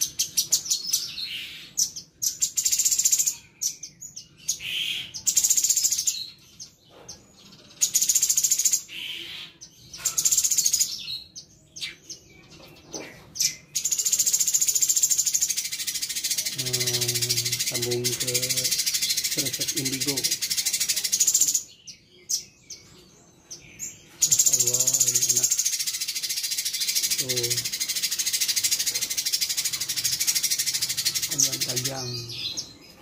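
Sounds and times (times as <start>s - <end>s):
bird rapid rattling chatter: 6.8s - 9.2s, 10.0s - 11.0s, 12.5s - 21.7s, 24.1s - 33.0s.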